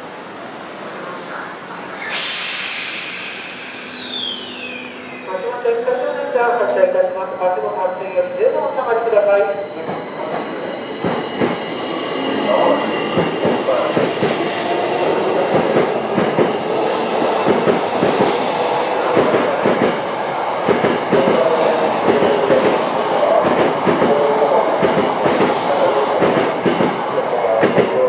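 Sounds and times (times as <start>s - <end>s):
train wheels clicking over rail joints: 13.1s - 14.5s.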